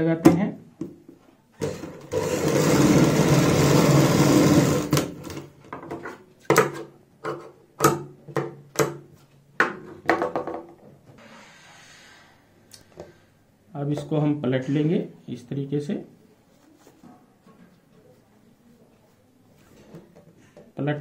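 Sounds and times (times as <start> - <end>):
sewing machine running: 1.6 - 5.4.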